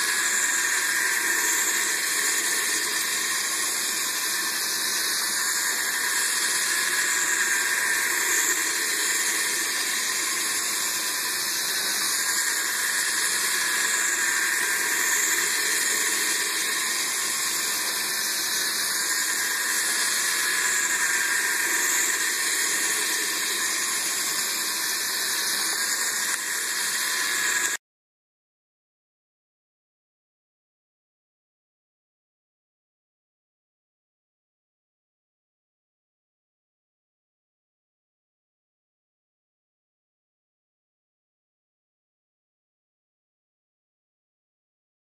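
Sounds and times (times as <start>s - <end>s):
toy train motor whirring: 0.0s - 27.8s.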